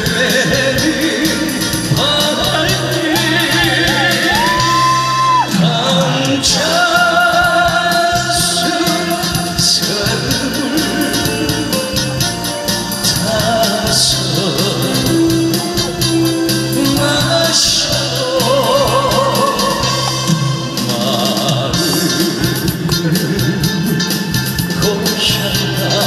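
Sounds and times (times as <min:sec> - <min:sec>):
man singing into a microphone: 0:00.0 - 0:26.0
trot music over a loudspeaker: 0:00.0 - 0:26.0.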